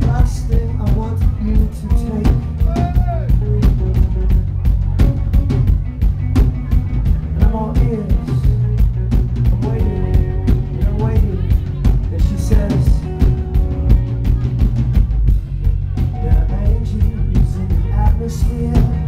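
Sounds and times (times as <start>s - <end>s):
man singing: 0.0s - 4.5s, 7.2s - 14.4s, 16.1s - 19.0s
drum kit beat: 0.0s - 19.0s
live rock band playing: 0.0s - 19.0s.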